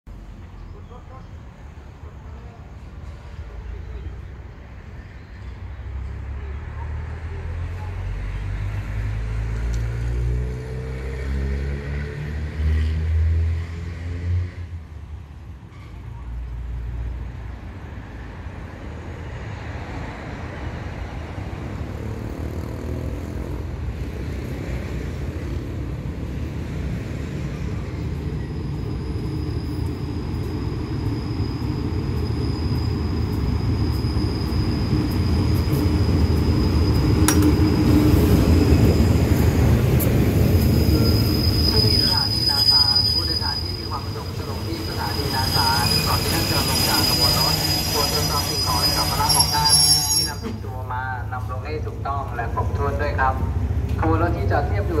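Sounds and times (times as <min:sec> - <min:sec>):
diesel locomotive rumble: 0:14.7 - 0:55.0
high brake squeal: 0:28.2 - 0:38.0, 0:40.6 - 0:50.6.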